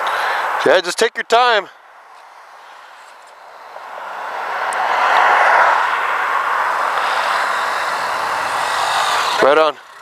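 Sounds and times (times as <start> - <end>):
road traffic passing: 0.0 - 10.0.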